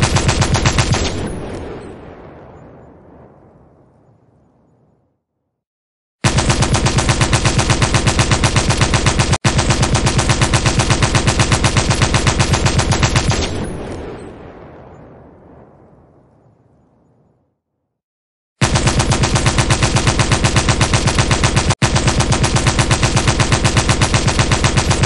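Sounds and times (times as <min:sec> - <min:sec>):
machine gun firing: 0:00.0 - 0:02.0, 0:06.2 - 0:14.3, 0:18.6 - 0:25.0
gunfire echo: 0:00.0 - 0:03.8, 0:06.2 - 0:16.0.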